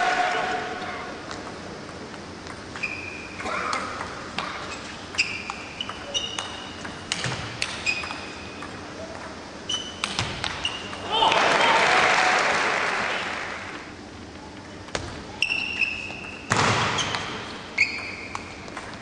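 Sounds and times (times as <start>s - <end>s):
shoes squeaking on floor: 2.8s - 3.4s, 4.7s - 6.8s, 9.7s - 11.0s, 15.3s - 18.7s.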